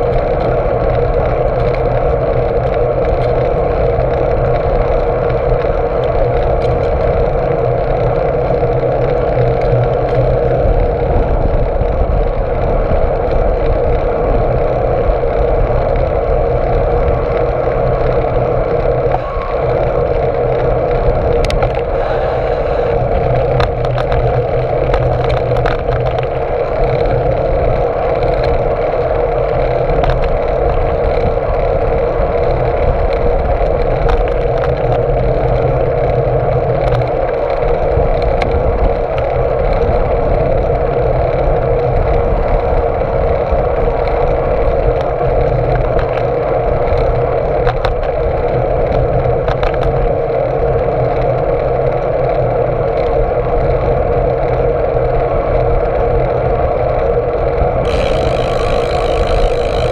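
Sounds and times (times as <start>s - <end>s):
bicycle tyre noise: 0.0s - 59.9s
wind noise: 0.0s - 59.9s
sharp clicks and knocks: 23.6s - 26.4s.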